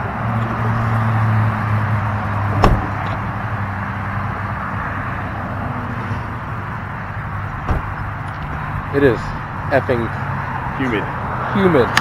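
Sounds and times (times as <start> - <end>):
truck engine low hum: 0.0 - 11.4
highway traffic noise: 0.0 - 12.0.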